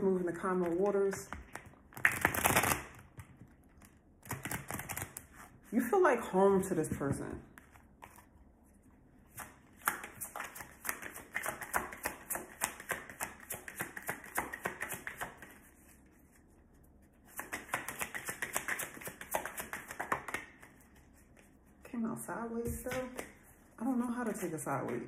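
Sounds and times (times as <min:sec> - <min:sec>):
cards being shuffled: 0:09.4 - 0:15.9, 0:17.3 - 0:21.5.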